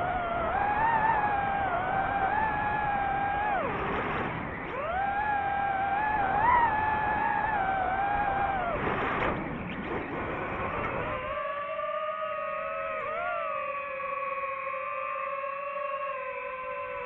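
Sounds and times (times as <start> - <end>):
drone motors whining: 0.0 - 17.0
rush of air: 3.5 - 4.8.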